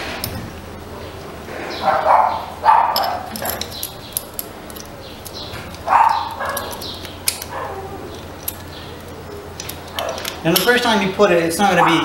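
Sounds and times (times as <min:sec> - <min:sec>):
light metallic clicks: 0:02.9 - 0:10.9.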